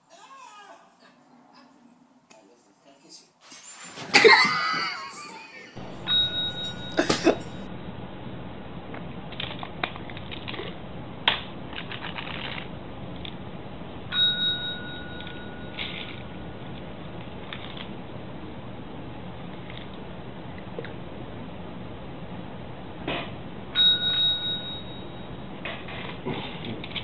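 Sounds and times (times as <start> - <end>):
desk bell ding: 5.8 - 7.6, 14.1 - 15.9, 23.8 - 25.4.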